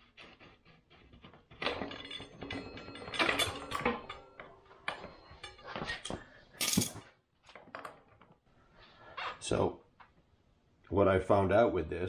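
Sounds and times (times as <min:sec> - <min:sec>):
metal axle scraping and clicking: 0:00.0 - 0:07.0.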